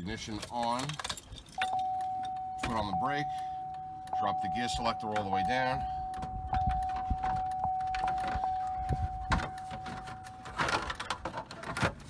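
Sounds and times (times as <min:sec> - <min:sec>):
plastic rattle: 0:09.3 - 0:12.0.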